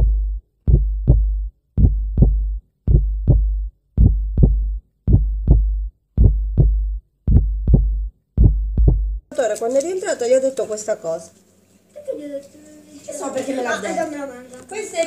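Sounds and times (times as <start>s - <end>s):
deep heartbeat thumps: 0.0s - 9.3s.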